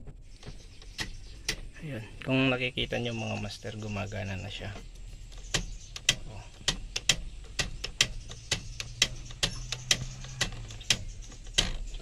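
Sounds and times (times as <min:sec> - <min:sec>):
rapid mechanical ticking: 0:03.0 - 0:12.0.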